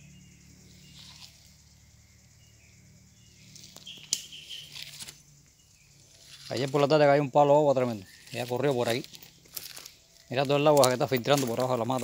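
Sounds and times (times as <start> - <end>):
birds chirping faintly: 0.0 - 12.0
leaves and undergrowth rustling: 0.6 - 2.4, 3.1 - 12.0
footsteps on leaf litter: 7.8 - 12.0.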